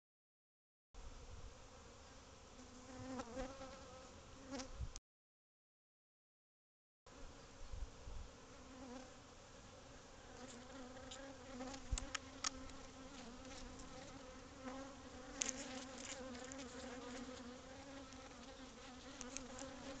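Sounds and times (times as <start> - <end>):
bees buzzing: 8.4 - 20.0.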